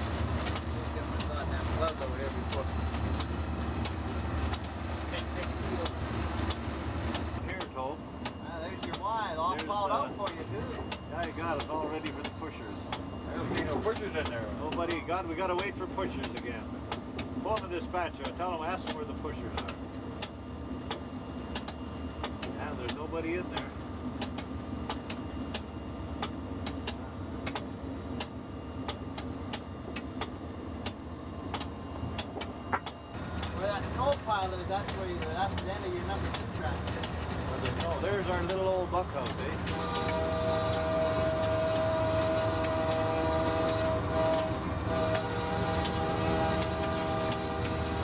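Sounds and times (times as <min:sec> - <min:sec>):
high whine: 0:00.0 - 0:16.7
locomotive engine rumble: 0:00.0 - 0:48.0.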